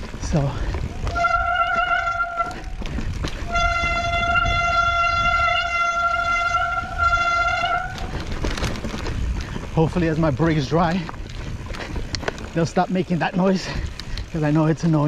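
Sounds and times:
low rumbling noise: 0:00.0 - 0:14.4
bike disc brakes squealing: 0:00.8 - 0:08.8.

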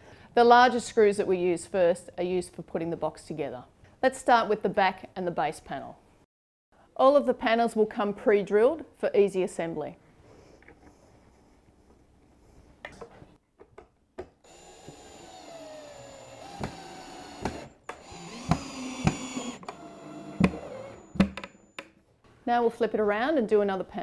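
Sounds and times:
drill motor whine: 0:14.5 - 0:21.8.

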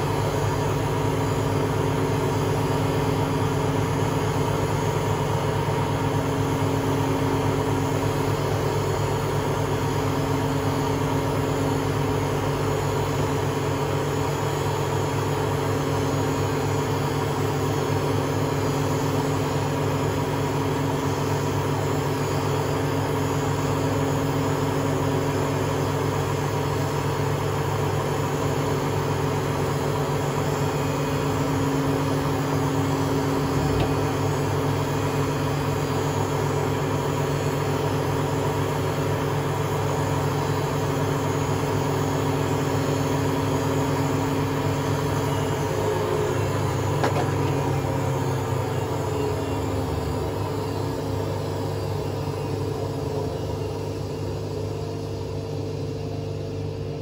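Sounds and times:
washing machine drum spinning: 0:29.2 - 0:36.2.

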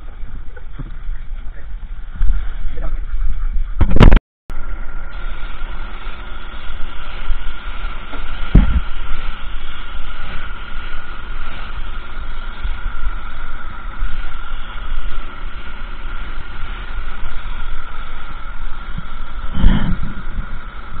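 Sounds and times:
air compressor whine: 0:00.0 - 0:21.0
loud thump: 0:08.5 - 0:08.8.

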